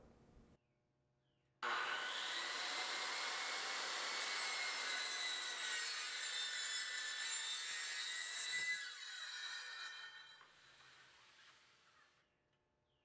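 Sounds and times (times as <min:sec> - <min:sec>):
circular saw cutting wood: 0:01.6 - 0:12.2.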